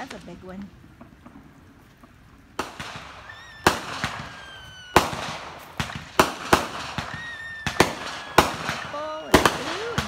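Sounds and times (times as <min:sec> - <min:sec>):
fireworks bangs: 0:00.0 - 0:10.0
fireworks whistles: 0:02.6 - 0:10.0.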